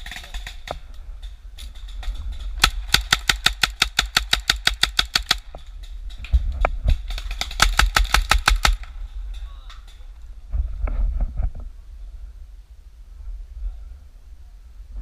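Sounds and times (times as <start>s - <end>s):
paintball marker firing in bursts: 2.6s - 5.5s, 7.0s - 9.0s.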